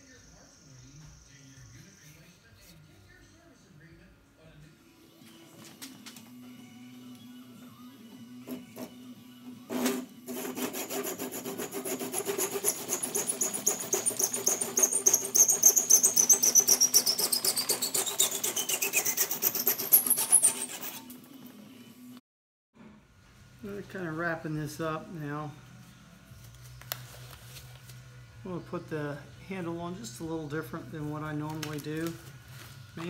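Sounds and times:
hand saw cutting wood: 0:09.7 - 0:21.2.

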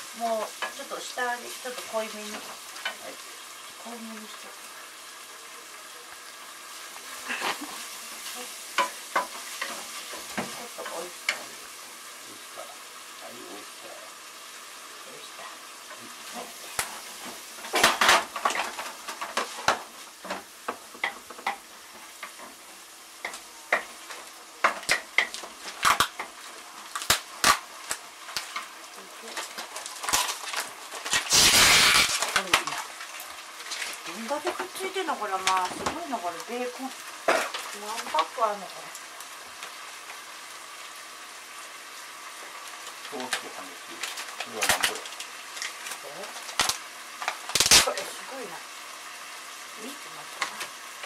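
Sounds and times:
meat sizzling in a frying pan: 0:00.0 - 0:51.0
wooden spatula knocking on a pan: 0:20.6 - 0:21.6.

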